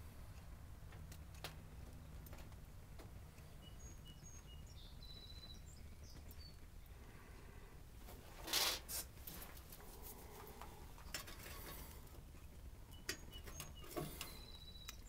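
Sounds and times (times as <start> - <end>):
high bird chirps: 3.4 - 6.6, 12.9 - 15.0.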